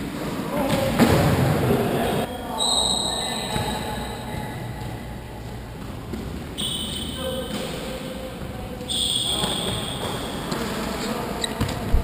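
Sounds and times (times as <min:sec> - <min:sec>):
ball thudding in hall: 0:00.6 - 0:02.3
trainers squeaking on floor: 0:02.3 - 0:04.8, 0:06.6 - 0:07.6, 0:08.9 - 0:11.7.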